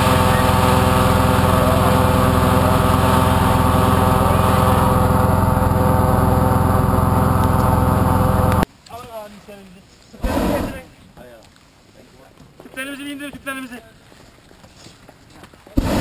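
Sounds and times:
petrol inflator fan running: 0:00.0 - 0:08.6, 0:10.2 - 0:10.8, 0:15.8 - 0:16.0.

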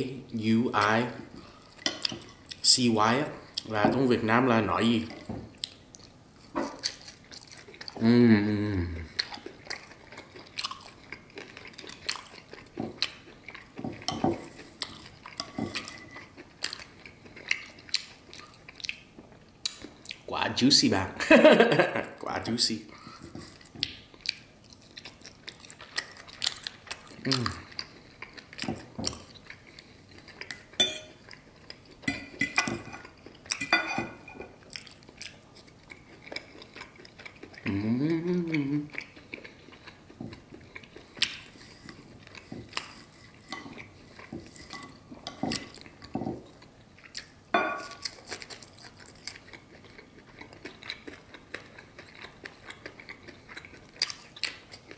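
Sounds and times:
close-up chewing: 0:05.1 - 0:08.2, 0:08.8 - 0:20.3, 0:22.9 - 0:54.9
knife and fork scraping a plate: 0:15.4 - 0:16.3, 0:42.6 - 0:45.8
knife and fork scraping plate: 0:15.4 - 0:16.3
cutlery clinking with brief ring: 0:30.8 - 0:31.2
wavering vocal hum: 0:37.7 - 0:38.9.

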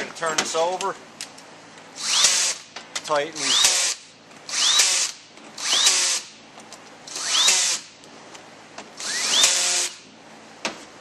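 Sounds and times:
cordless drill motor whine: 0:09.0 - 0:10.0.

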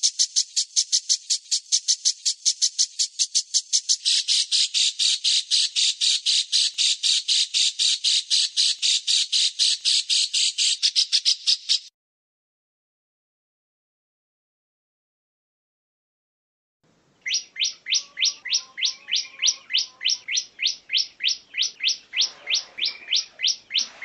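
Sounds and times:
songbird rasping call: 0:00.0 - 0:11.9, 0:17.2 - 0:24.0.

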